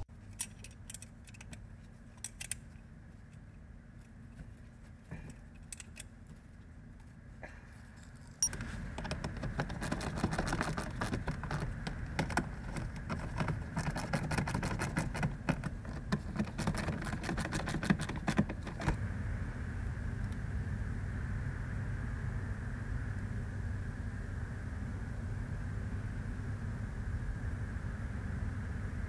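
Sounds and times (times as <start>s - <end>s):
steady low hum: 0.0s - 29.0s
hand tools clicking and rattling: 0.2s - 4.2s, 5.1s - 6.4s, 7.9s - 19.0s.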